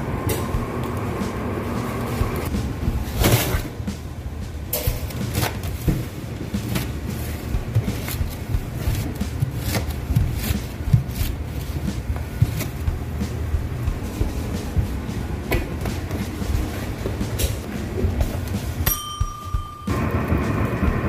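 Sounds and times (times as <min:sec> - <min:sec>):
steady low hum: 0:00.0 - 0:21.0
pizza cutter crunching crust: 0:05.0 - 0:14.8.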